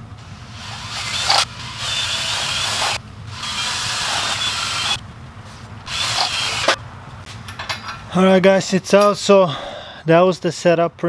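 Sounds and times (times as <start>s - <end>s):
drill spinning valve against seat: 0.5s - 5.0s, 5.9s - 6.8s.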